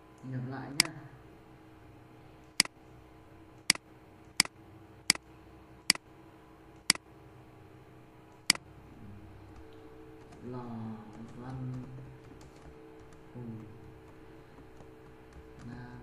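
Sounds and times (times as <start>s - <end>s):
faint steady hum: 0.0s - 16.0s
computer mouse clicking: 11.1s - 15.8s.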